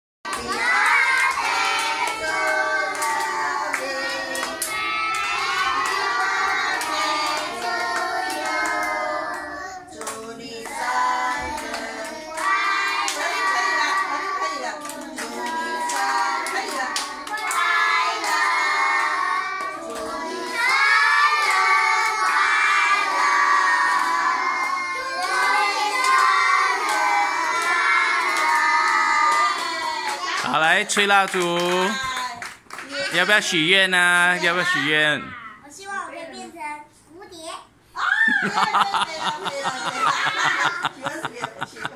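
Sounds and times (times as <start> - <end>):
children clapping: 0.3 - 10.8, 11.4 - 14.2, 14.8 - 33.4
children singing: 0.3 - 14.4, 15.2 - 30.2.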